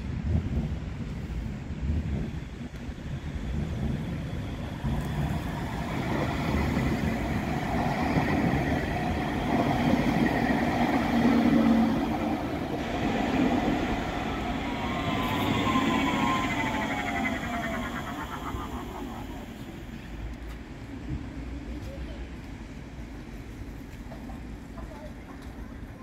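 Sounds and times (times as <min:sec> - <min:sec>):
light-rail train passing: 0:00.0 - 0:26.0
falling whine: 0:03.4 - 0:20.2.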